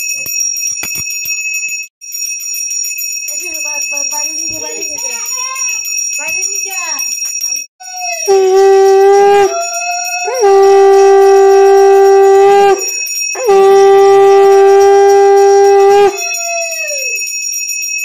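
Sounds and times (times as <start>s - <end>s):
hand bell ringing: 0.0s - 18.0s
conch shell blasts: 8.3s - 9.5s, 10.3s - 16.2s.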